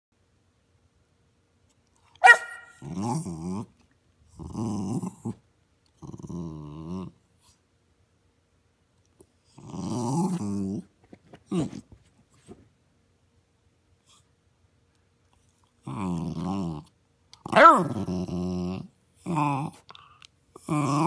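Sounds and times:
dog barking: 2.2 - 2.8, 17.5 - 18.0
dog growling vocalizations: 2.8 - 7.6, 9.4 - 11.9, 15.8 - 21.0.

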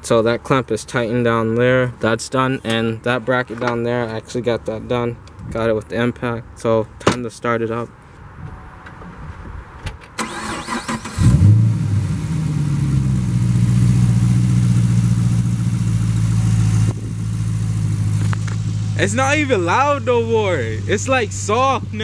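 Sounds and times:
car engine starting and idling: 10.1 - 22.0.

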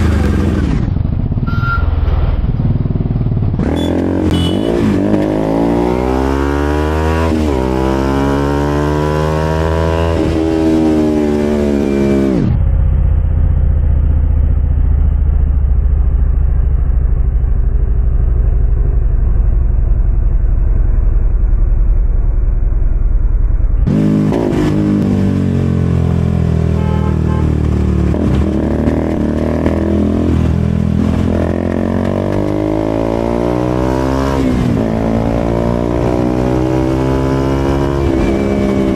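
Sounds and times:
motorcycle engine revving: 0.0 - 22.8, 23.5 - 38.9
muffled low engine drone: 12.4 - 23.9.

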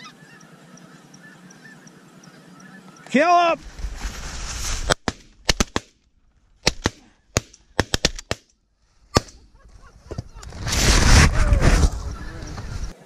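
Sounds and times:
shotgun shots: 4.9 - 6.0, 6.6 - 8.4.

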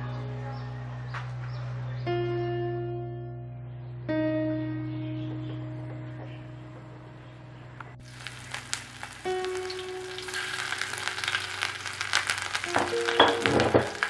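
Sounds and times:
ginger sizzling in hot oil: 8.0 - 14.0.

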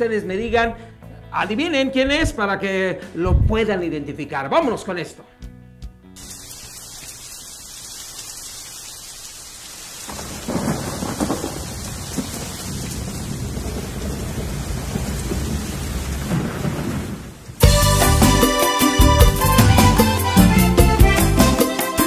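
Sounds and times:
steady rain: 6.2 - 17.6
thunder rumbling: 10.0 - 17.8.

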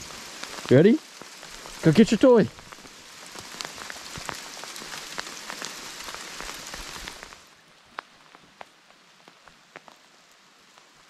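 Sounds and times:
hail falling hard: 0.0 - 7.5.

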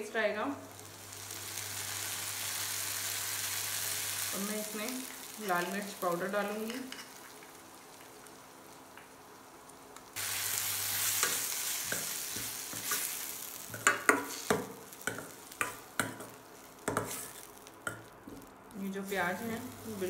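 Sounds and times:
masala sizzling in pan: 0.0 - 20.0.

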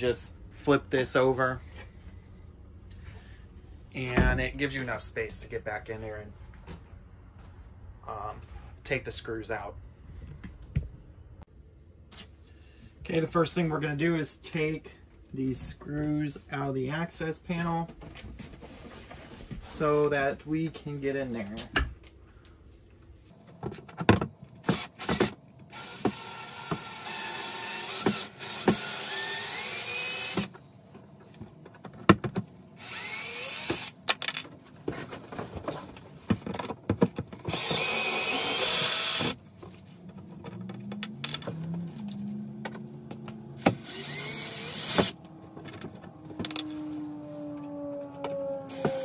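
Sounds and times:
cordless drill motor: 24.6 - 30.5, 32.8 - 34.0, 37.5 - 39.4, 43.6 - 45.2, 48.7 - 49.0
handling clicks and knocks: 34.0 - 37.5.

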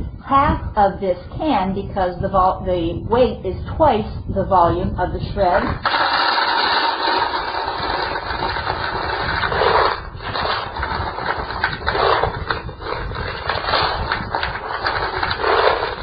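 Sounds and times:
pellets pouring into plastic bucket: 5.8 - 16.0.

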